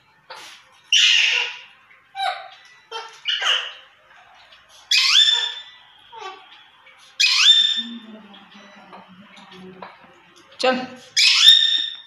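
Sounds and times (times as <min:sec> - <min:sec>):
parakeets squawking: 0:00.3 - 0:09.6, 0:11.1 - 0:12.0
shrill rising parakeet call: 0:00.9 - 0:01.6, 0:04.9 - 0:05.8, 0:07.2 - 0:07.9, 0:11.2 - 0:12.0.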